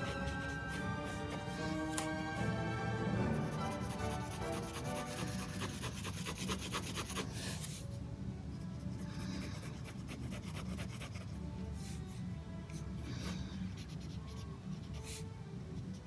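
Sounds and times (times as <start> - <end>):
pen scratching on paper: 3.4 - 7.7, 9.0 - 11.4.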